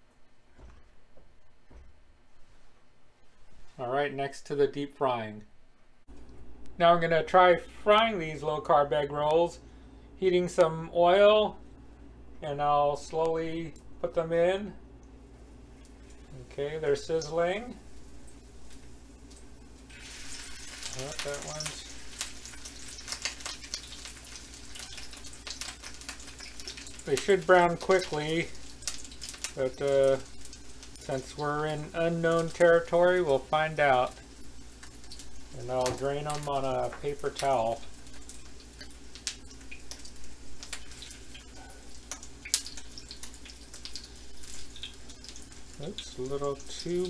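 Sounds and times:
egg rolls sizzling in hot oil: 15.4s - 47.0s.

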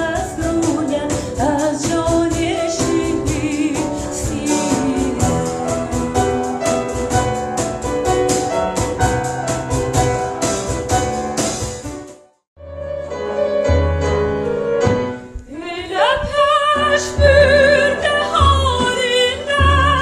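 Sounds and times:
woman singing with vibrato: 0.0s - 6.8s, 15.5s - 20.0s
percussion: 0.0s - 12.2s
grand piano: 0.0s - 20.0s.

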